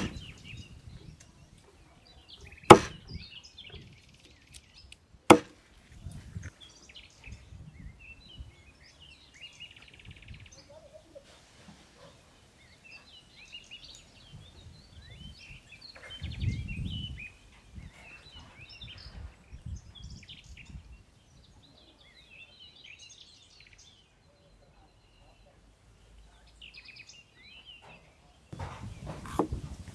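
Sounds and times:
handling noise and thuds: 0.0 - 0.6, 2.7 - 3.2, 5.3 - 6.5, 28.6 - 29.9
small birds chirping: 0.0 - 29.9.

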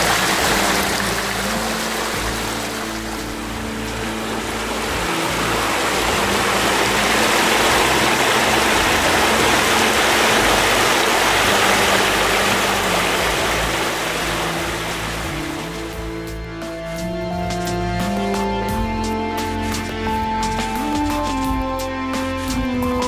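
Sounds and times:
water rushing over rocks: 0.0 - 16.2.

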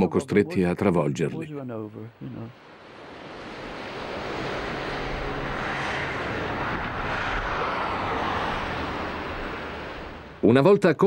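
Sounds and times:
plane passing: 1.9 - 10.7.

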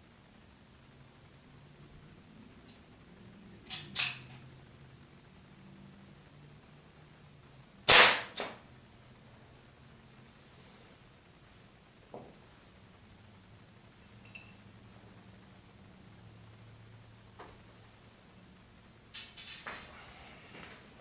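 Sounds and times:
air rifle shots: 7.9 - 8.6.

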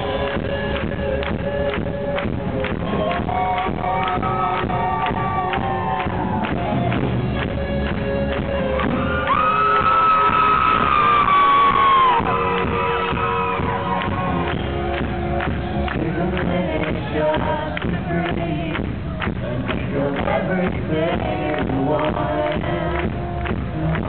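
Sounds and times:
live rock band playing: 0.0 - 24.0
crowd shouting and whooping: 2.5 - 7.4, 8.1 - 17.7.

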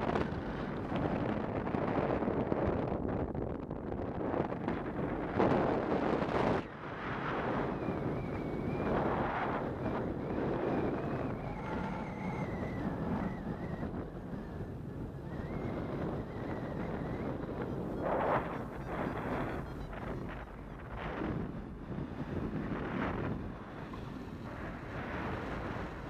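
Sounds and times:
wind buffeting microphone: 0.0 - 26.0
faint wavering high whistle: 7.6 - 20.9.

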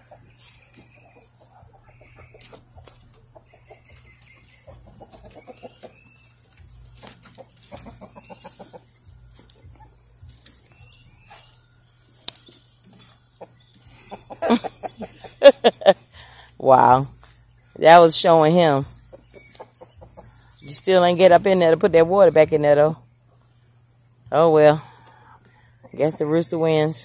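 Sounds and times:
chickens clucking: 0.0 - 22.1, 23.0 - 26.9.

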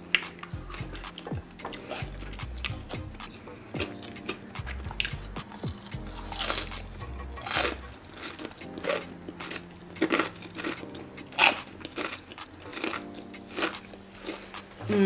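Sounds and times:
crunching and chewing fried chicken: 3.8 - 14.5.

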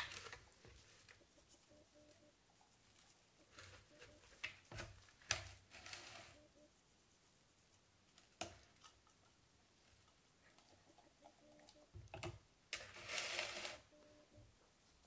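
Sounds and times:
rustling scrape: 2.6 - 6.5, 12.8 - 13.9.

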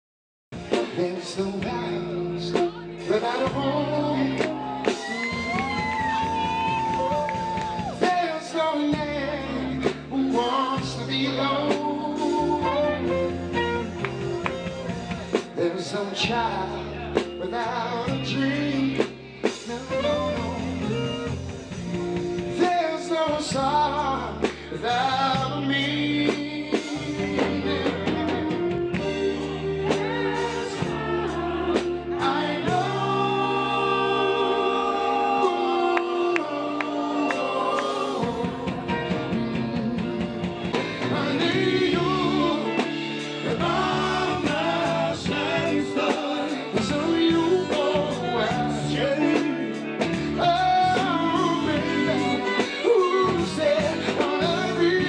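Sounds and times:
drum kit: 0.5 - 55.0
guitar: 0.5 - 55.0
man singing soul music: 0.6 - 55.0
repeating bass line: 23.4 - 52.6.

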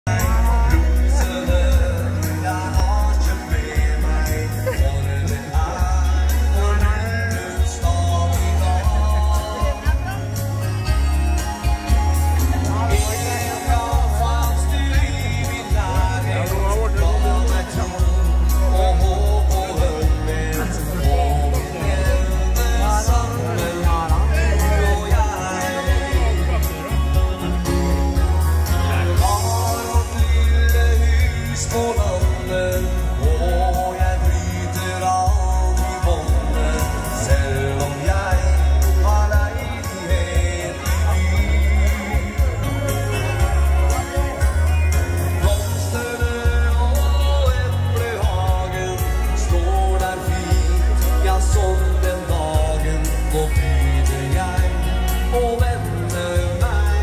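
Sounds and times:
dance band playing through speakers: 0.0 - 57.0
keyboard: 0.0 - 57.0
person singing: 0.0 - 57.0
strong bass line: 0.0 - 57.0.

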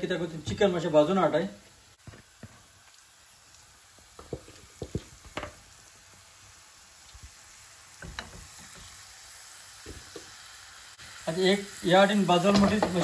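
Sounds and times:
chicken sizzling in frying pan: 0.0 - 13.0
light knocks in pan: 4.2 - 5.6, 8.0 - 8.5, 12.5 - 13.0.

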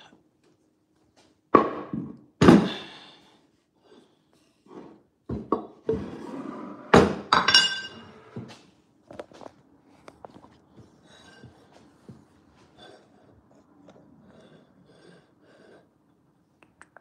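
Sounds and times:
ceramic plate clinking: 7.3 - 8.1.

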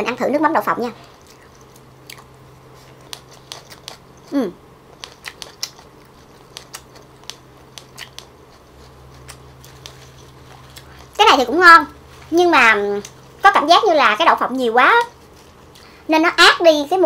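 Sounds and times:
close-miked chewing crunches: 1.0 - 11.5.

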